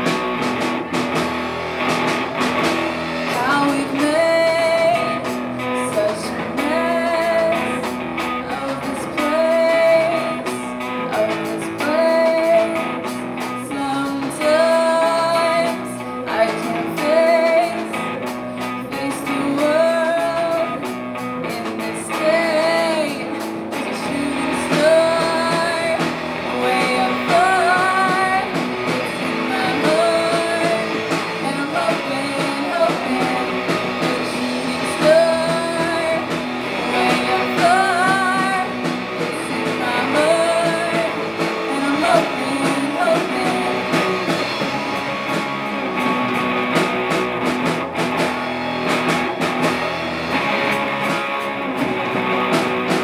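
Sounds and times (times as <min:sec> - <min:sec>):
drums: 0:00.0 - 0:53.0
electric guitars: 0:00.0 - 0:53.0
woman singing with vibrato: 0:03.3 - 0:44.6.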